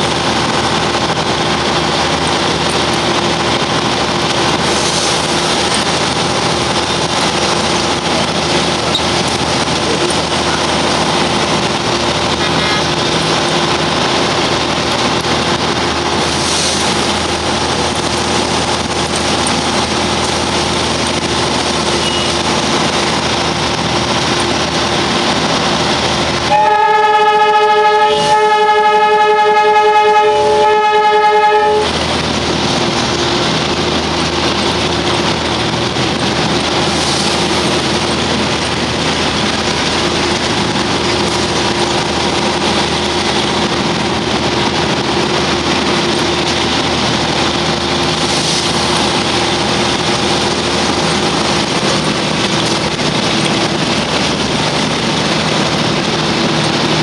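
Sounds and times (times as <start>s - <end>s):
diesel locomotive running: 0.0s - 57.0s
train horn blast: 26.4s - 32.0s.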